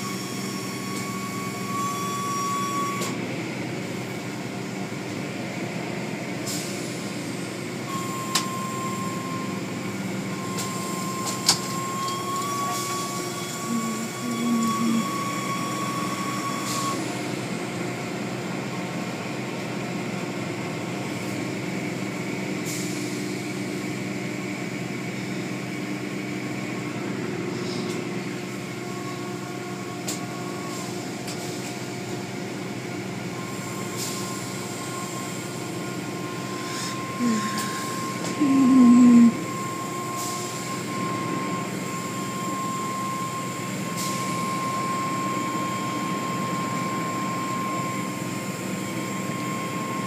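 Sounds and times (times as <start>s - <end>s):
thin steady whine: 10.3s - 16.6s, 36.5s - 39.9s.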